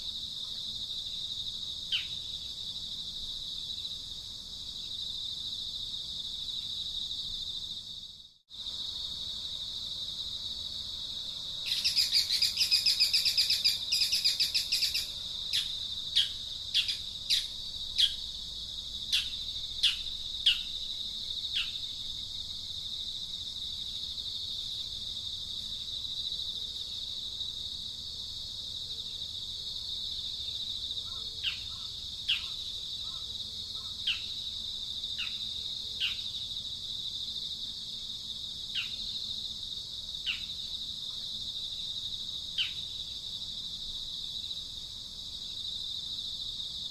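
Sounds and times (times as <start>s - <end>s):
high-pitched insect drone: 11.0s - 23.2s
loud rapid bird trill: 11.7s - 18.2s.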